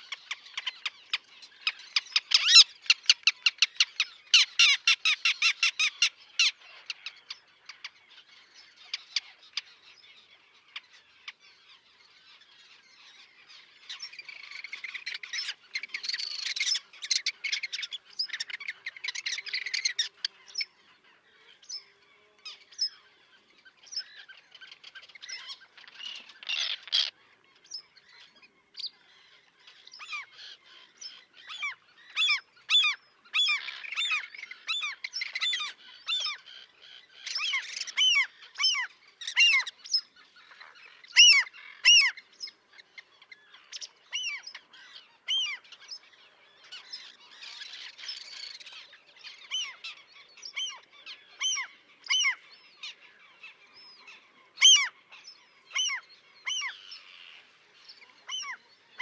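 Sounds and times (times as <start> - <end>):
terns calling: 0.0 - 59.0.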